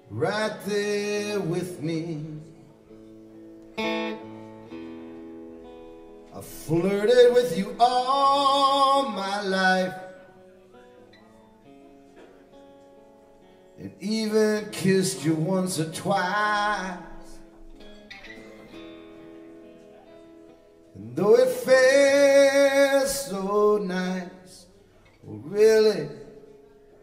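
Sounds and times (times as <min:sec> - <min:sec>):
man singing: 0:00.0 - 0:02.7, 0:06.3 - 0:10.4, 0:13.8 - 0:17.5, 0:21.0 - 0:26.5
acoustic guitars: 0:00.0 - 0:27.0.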